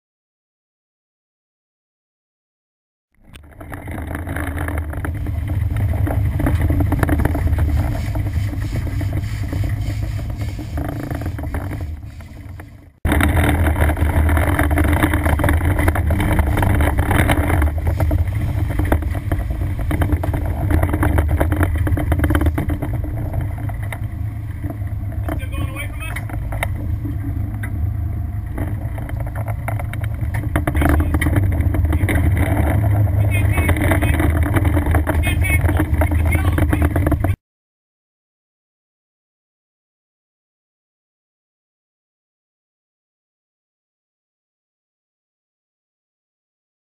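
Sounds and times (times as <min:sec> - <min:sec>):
boat engines droning: 0:03.2 - 0:37.4
rushing water and wake: 0:03.2 - 0:37.4.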